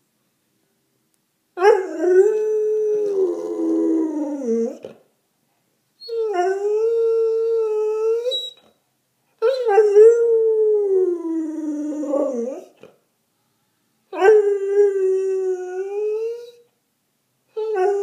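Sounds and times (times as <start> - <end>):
dog howling: 1.6 - 4.9, 6.1 - 8.6, 9.4 - 12.8, 17.6 - 18.0.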